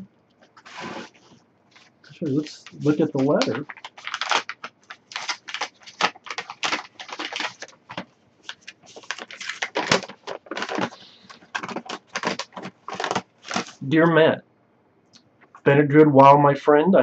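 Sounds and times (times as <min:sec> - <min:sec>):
paper rustling and crinkling: 0:00.4 - 0:13.8.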